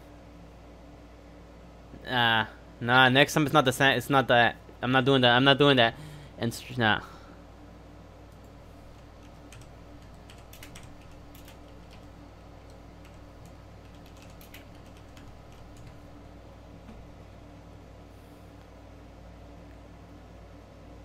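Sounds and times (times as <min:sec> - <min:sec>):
steady low hum: 0:00.0 - 0:21.0
keyboard keys clicking: 0:08.3 - 0:16.0.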